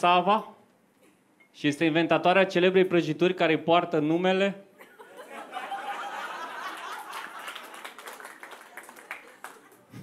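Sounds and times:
audience laughing: 4.8s - 7.9s
audience clapping: 6.1s - 10.0s.

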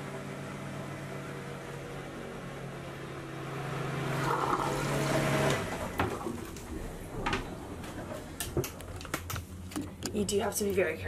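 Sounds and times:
toilet pump humming: 2.7s - 7.0s
water rushing through bowl: 3.9s - 5.6s.

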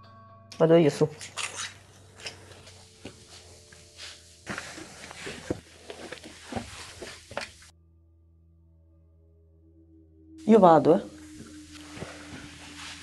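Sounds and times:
clothes and gear rustling: 1.3s - 7.7s, 11.2s - 13.0s
footsteps and scuffs: 1.4s - 7.7s.

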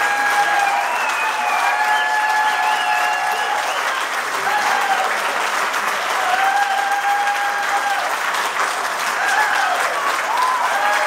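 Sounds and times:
crowd calls rising and falling: 0.0s - 5.3s
audience applauding: 0.0s - 11.0s.

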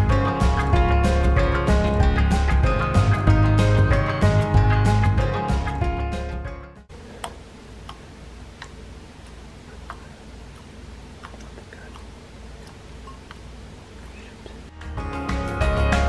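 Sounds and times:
low steady hum: 6.8s - 14.8s.

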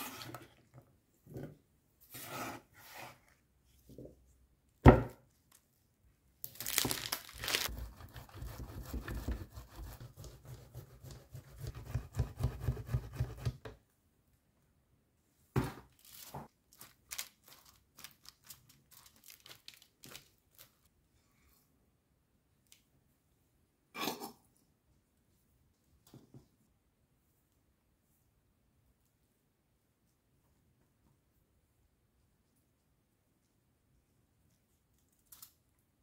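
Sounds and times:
cheese grating on metal grater: 7.5s - 13.6s.

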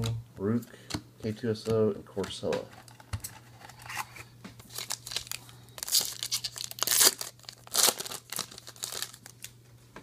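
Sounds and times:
foil wrapper ripping: 4.6s - 9.5s
foil wrapper crinkling: 4.6s - 9.6s.

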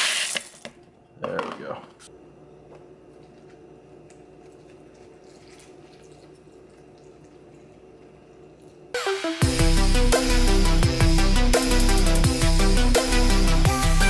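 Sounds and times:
low steady hum: 0.6s - 9.0s
loud electronic music: 9.0s - 14.0s.

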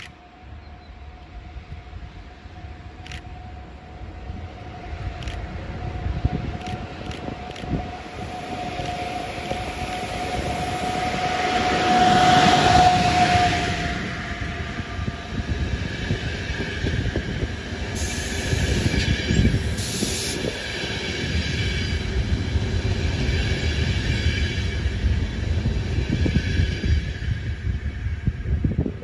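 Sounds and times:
train wheels rumbling on rails: 0.0s - 29.0s.

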